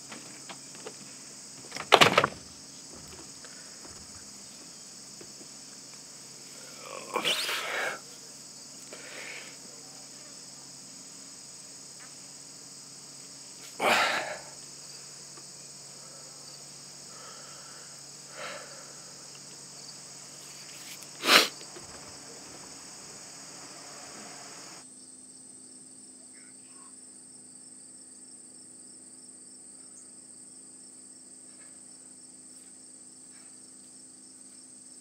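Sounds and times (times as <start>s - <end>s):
crickets chirping: 0.0s - 35.0s
short sharp noises: 20.8s - 24.8s.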